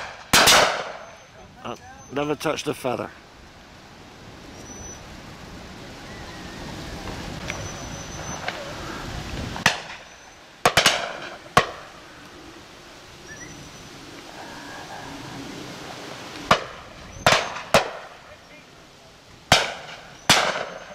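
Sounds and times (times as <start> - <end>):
shotgun shots: 0.0 - 1.1, 10.6 - 11.8, 19.5 - 20.9.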